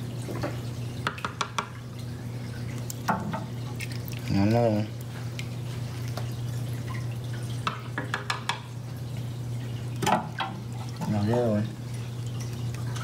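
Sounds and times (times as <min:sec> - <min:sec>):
water dripping and trickling: 0:00.0 - 0:13.0.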